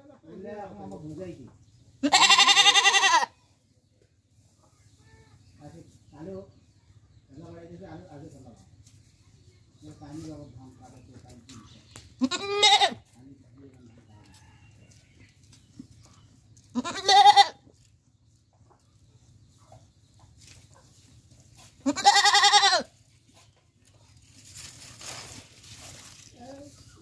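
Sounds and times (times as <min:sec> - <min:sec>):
goat bleating: 0:02.0 - 0:03.4, 0:12.2 - 0:13.1, 0:16.7 - 0:17.6, 0:21.8 - 0:23.0.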